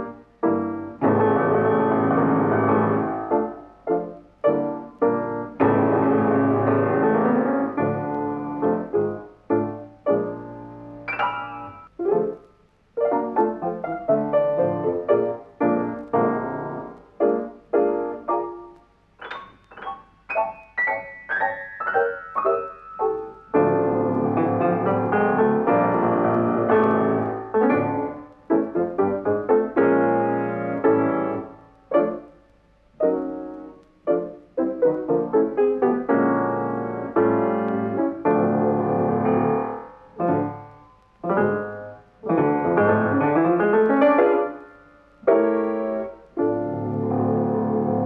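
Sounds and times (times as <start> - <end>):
piano music: 0.0 - 48.0.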